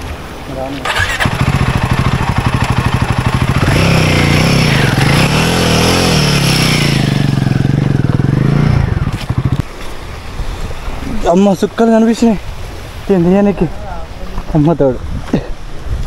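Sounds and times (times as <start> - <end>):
motorcycle engine revving: 0.9 - 9.8.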